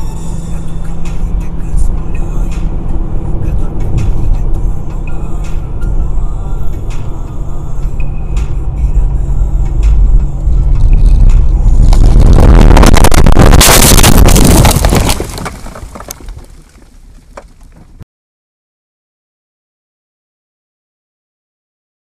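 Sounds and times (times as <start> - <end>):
car cabin noise at highway speed: 0.0 - 14.1
car crash scraping and crunching: 10.7 - 18.0.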